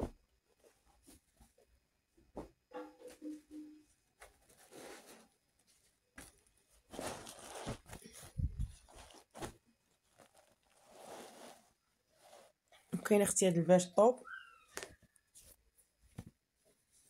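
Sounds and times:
fabric rustling and swishing: 0:04.2 - 0:12.6.

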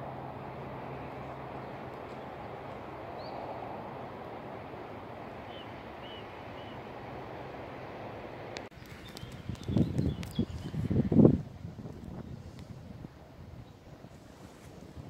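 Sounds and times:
low hum: 0:00.0 - 0:08.7
train rumbling along track: 0:00.0 - 0:11.9.

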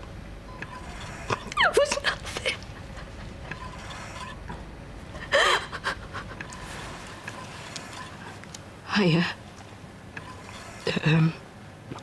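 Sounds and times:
woman sobbing: 0:01.5 - 0:03.5, 0:05.2 - 0:06.4.

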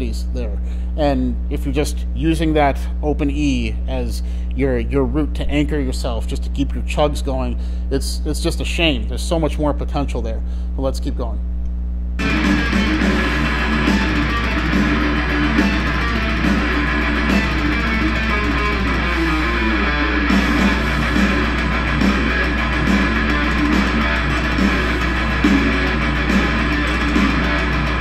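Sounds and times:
electric guitar metal riff: 0:12.2 - 0:28.0.

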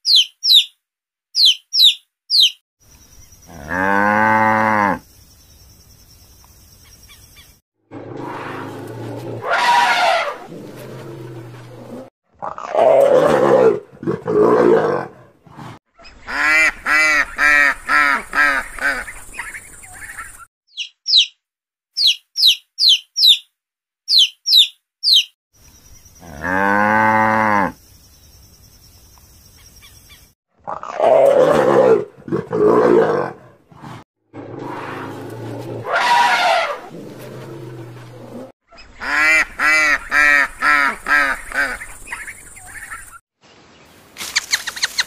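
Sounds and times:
harsh animal calls: 0:07.9 - 0:20.3, 0:30.6 - 0:43.0
baby chicks peeping: 0:19.4 - 0:21.4.

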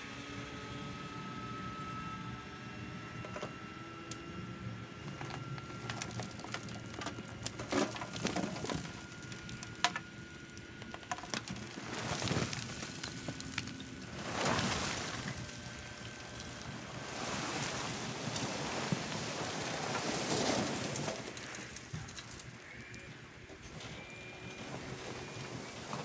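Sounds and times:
soil sliding: 0:05.0 - 0:23.0
rocks clattering: 0:05.1 - 0:23.0.

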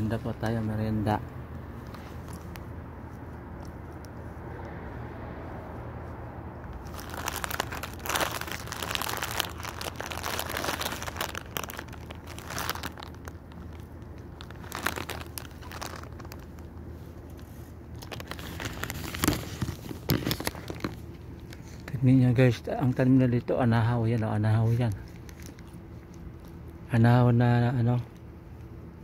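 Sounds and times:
steady low hum: 0:00.0 - 0:29.0
plastic bag crinkling: 0:06.7 - 0:21.9, 0:23.9 - 0:26.8.

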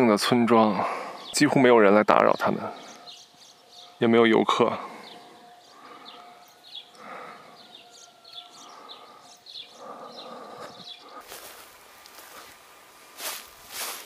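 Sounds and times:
faint outdoor hiss: 0:00.0 - 0:14.0
songbirds chirping: 0:00.0 - 0:14.0.

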